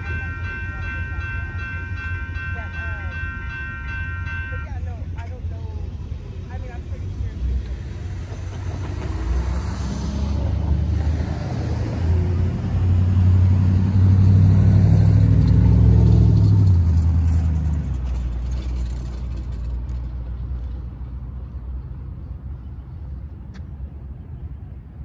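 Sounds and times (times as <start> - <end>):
cars driving past: 6.2 - 23.9
old car engine rumble: 12.1 - 21.9.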